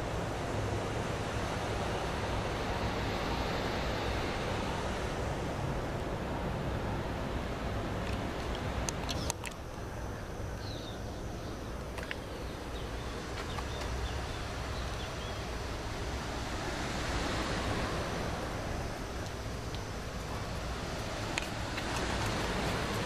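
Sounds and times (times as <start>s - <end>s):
wind on microphone: 11.7s - 23.0s.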